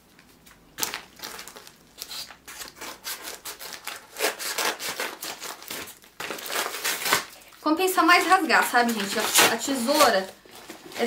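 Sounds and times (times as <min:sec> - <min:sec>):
package being torn open: 0:00.3 - 0:07.6.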